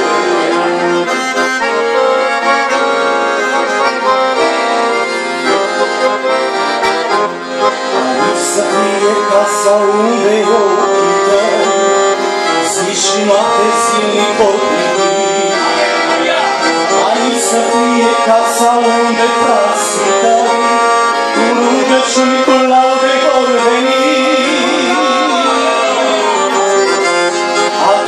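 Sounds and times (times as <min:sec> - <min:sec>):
accordion playing a melody: 0:00.0 - 0:28.0.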